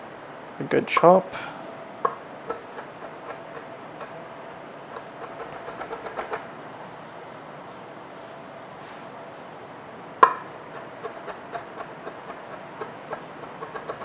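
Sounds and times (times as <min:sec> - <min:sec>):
steady hum: 0:00.0 - 0:14.0
knife chopping herbs on wood: 0:02.1 - 0:06.4, 0:10.2 - 0:14.0.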